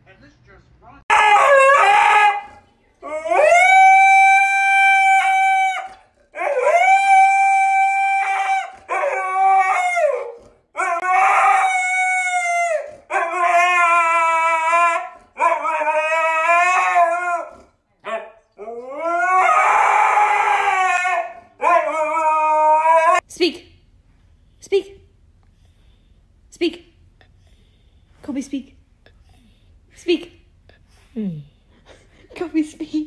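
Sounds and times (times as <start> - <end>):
husky howling: 1.1 - 23.2.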